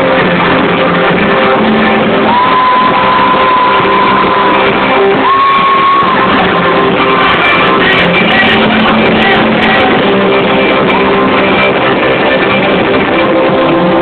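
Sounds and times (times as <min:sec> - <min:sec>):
live rock band playing: 0:00.0 - 0:14.0
crowd shouts: 0:02.2 - 0:07.7.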